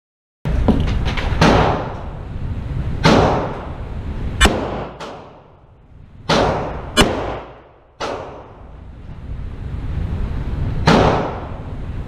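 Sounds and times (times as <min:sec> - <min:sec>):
revolver gunshots echoing indoors: 0:01.2 - 0:02.2, 0:03.0 - 0:08.8, 0:10.8 - 0:11.9.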